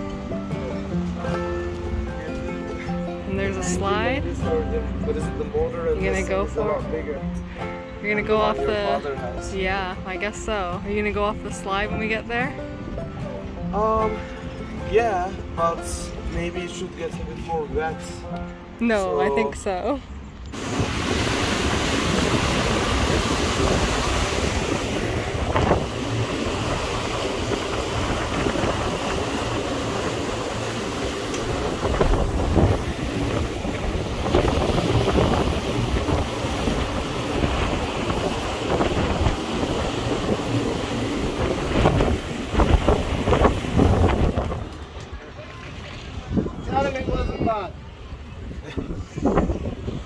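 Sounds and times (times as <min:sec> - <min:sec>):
water washing along hull: 0:00.0 - 0:06.8, 0:20.6 - 0:50.0
wind buffeting microphone: 0:19.5 - 0:50.0.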